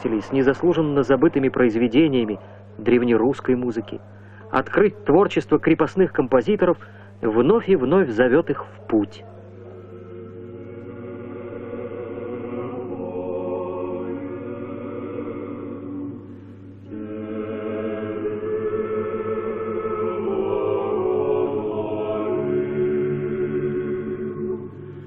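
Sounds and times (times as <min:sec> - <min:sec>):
male vocal quartet singing: 0:09.6 - 0:25.0.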